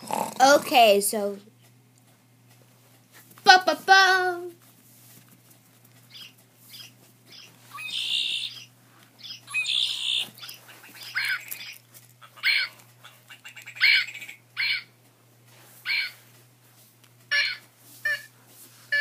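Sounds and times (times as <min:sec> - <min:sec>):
buzzy toy bird calls: 0:06.1 - 0:14.9, 0:15.8 - 0:16.2, 0:17.3 - 0:18.3
toy bird calls and squawks: 0:06.1 - 0:14.9, 0:15.8 - 0:16.2, 0:17.3 - 0:18.3.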